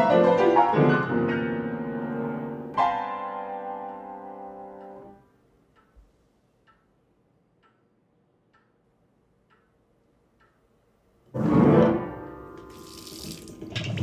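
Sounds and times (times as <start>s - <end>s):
piano notes and chord: 0.0s - 5.2s, 11.3s - 13.0s
clock ticking faintly: 3.8s - 11.2s.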